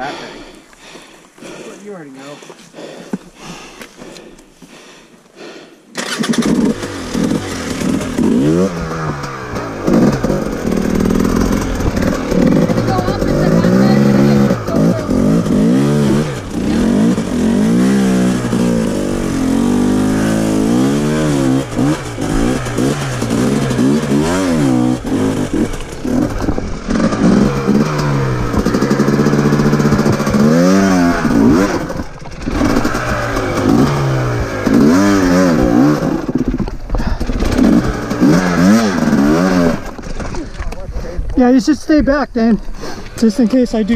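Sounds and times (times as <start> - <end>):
dirt bike engine revving: 5.9 - 40.6.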